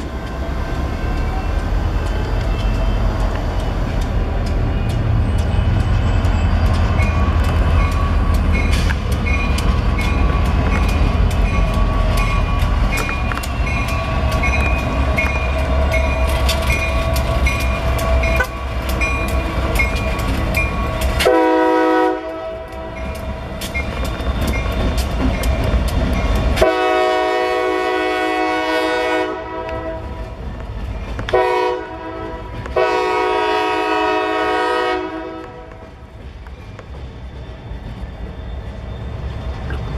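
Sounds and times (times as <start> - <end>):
train wheels clicking over rail joints: 0.0 - 27.2, 35.3 - 39.9
diesel locomotive engines rumbling: 0.0 - 39.9.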